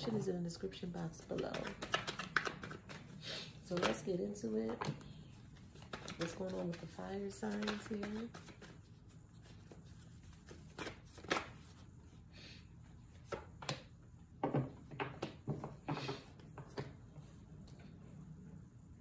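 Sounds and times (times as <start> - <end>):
cards being shuffled: 1.2 - 4.0, 4.7 - 11.8.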